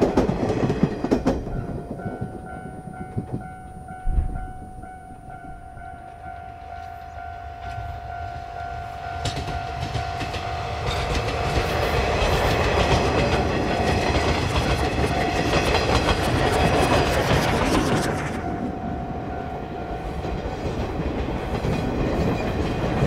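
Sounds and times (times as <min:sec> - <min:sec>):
train wheels clattering over rails: 0:00.0 - 0:04.6, 0:09.2 - 0:18.7, 0:19.6 - 0:23.0
train rumble: 0:00.0 - 0:23.0
steady high tone: 0:01.4 - 0:11.6, 0:17.9 - 0:20.7.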